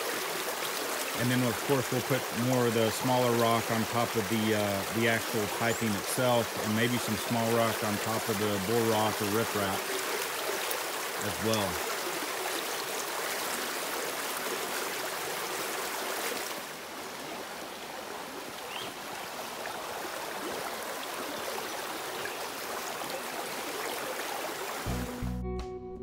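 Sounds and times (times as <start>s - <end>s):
creek water rushing: 0.0s - 25.2s.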